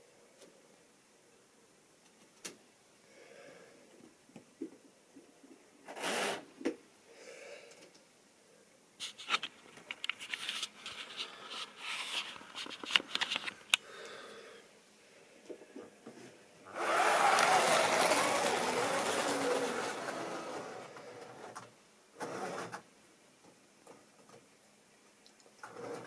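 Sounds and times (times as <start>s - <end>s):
rustling handling noises: 9.0s - 13.8s.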